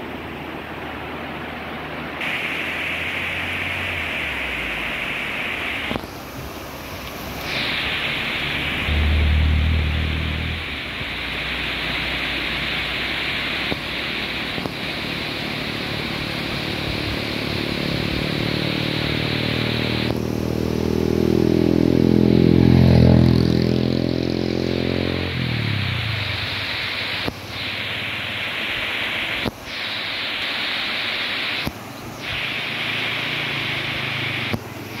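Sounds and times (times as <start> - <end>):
river rushing over rocks: 0.0 - 22.4, 23.3 - 35.0
motor vehicle passing: 8.4 - 10.7, 16.7 - 26.6.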